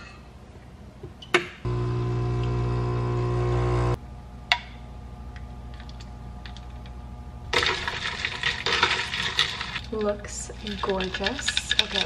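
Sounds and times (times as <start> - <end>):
straw stirring ice: 7.5 - 12.0.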